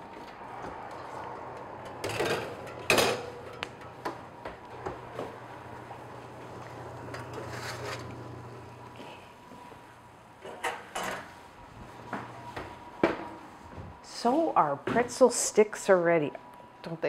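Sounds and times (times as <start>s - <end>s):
low steady hum: 0.0s - 10.5s
baking sheet scraping oven rack: 6.6s - 8.7s.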